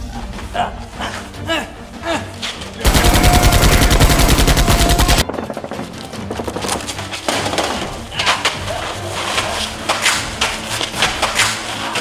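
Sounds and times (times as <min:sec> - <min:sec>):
machine-gun fire: 0:02.9 - 0:06.0.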